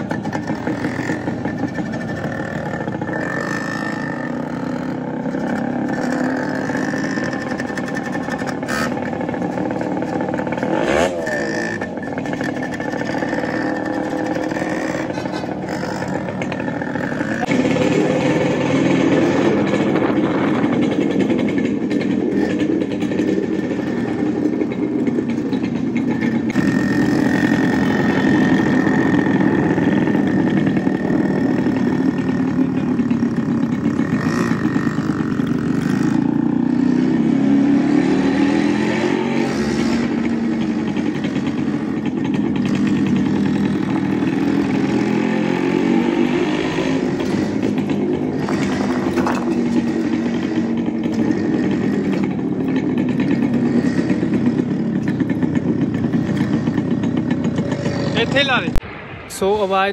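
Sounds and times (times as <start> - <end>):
two-stroke motorcycle engine running: 0.0 - 58.8.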